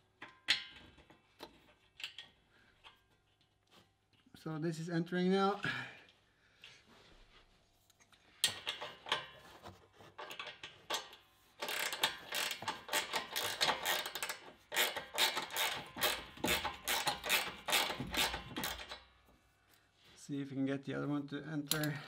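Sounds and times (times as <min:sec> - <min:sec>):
ratcheting spanner clicking: 0:00.1 - 0:03.0, 0:10.2 - 0:19.0.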